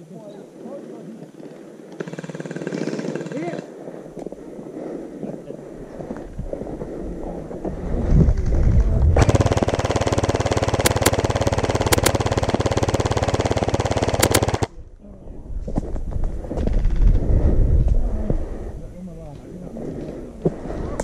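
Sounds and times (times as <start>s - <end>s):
gel blaster firing full auto: 9.2s - 14.7s.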